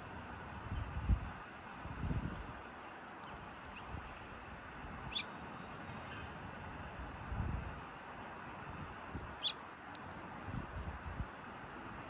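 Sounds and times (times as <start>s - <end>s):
steady outdoor hiss: 0.0s - 12.0s
songbirds chirping: 2.6s - 10.2s.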